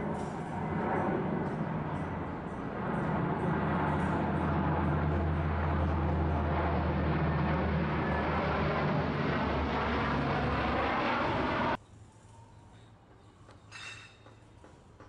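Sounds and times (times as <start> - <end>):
turboprop aircraft passing overhead: 0.0 - 11.8.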